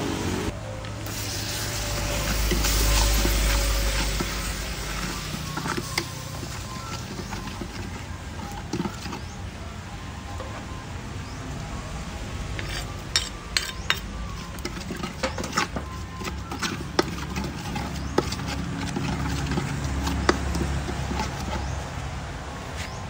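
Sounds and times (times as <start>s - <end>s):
ladle scraping and clinking pot: 1.0s - 9.5s, 12.6s - 21.9s.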